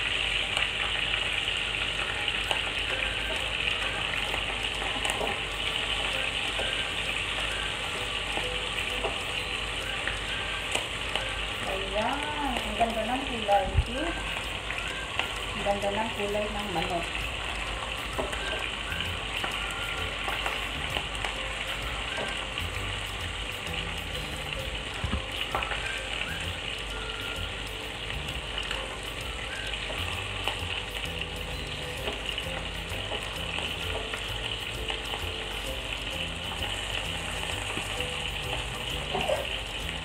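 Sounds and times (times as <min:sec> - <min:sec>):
chicken frying in oil: 0:00.0 - 0:40.0.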